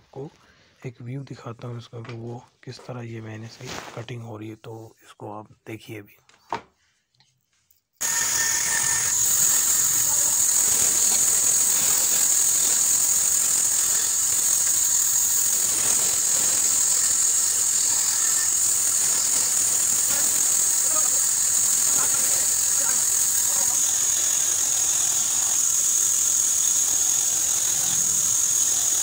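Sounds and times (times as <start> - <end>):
band saw cutting wood: 8.0 - 29.0.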